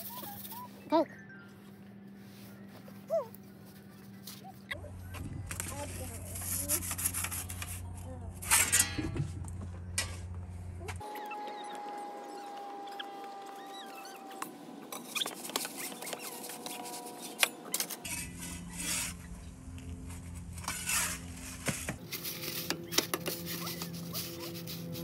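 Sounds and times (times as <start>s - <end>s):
metal peel scraping on stone: 5.5s - 9.2s, 20.5s - 25.0s.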